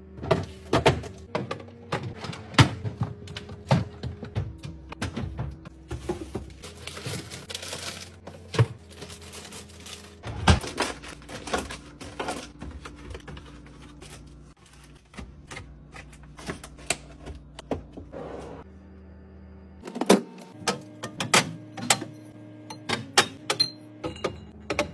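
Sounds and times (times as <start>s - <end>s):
packaging rustling: 6.2s - 15.2s.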